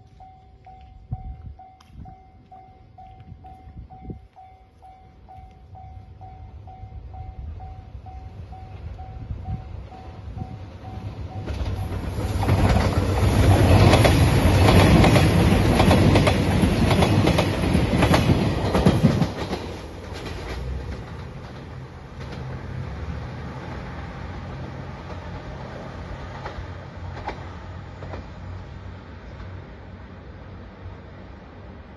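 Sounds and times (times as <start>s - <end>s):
train wheels clacking: 9.8s - 23.0s, 26.2s - 28.5s.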